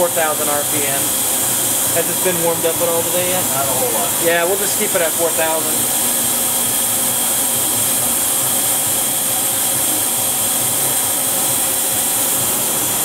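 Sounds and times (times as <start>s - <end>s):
machine spindle hissing: 0.0s - 13.0s.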